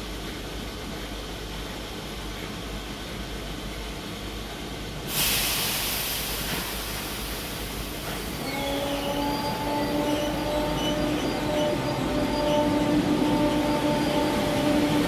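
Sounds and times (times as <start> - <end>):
electric train hum: 0.0 - 15.0
train air hiss: 5.0 - 12.1.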